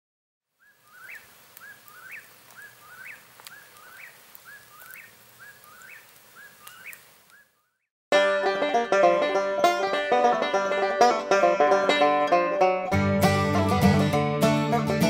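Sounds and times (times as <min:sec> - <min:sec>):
soft outdoor hiss: 0:00.5 - 0:07.8
small animal chirping call: 0:00.6 - 0:07.9.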